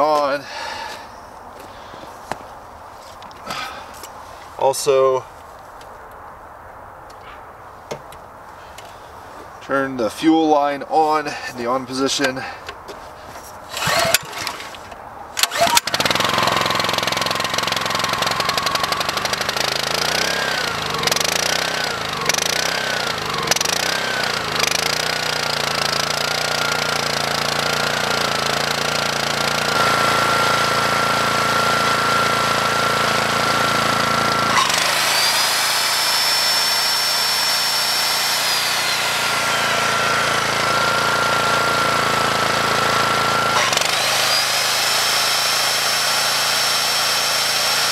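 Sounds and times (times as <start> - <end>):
circular saw spinning: 13.7 - 47.9
generator engine running: 13.7 - 47.9
generator recoil starter pulls: 13.7 - 47.9.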